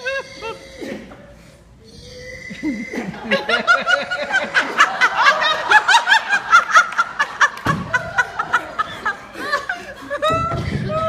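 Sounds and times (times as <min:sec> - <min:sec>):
audience laughing: 0:02.6 - 0:11.0.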